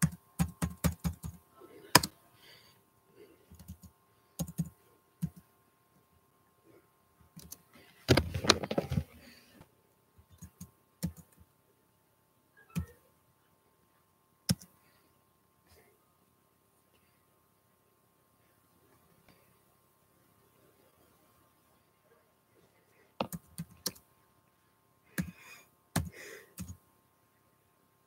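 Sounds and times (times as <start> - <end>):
typing on computer keyboard: 0.0 - 1.4, 3.5 - 5.4, 7.4 - 7.6, 10.3 - 11.4, 14.5 - 14.7, 23.2 - 24.0, 25.2 - 25.4, 26.0 - 26.8.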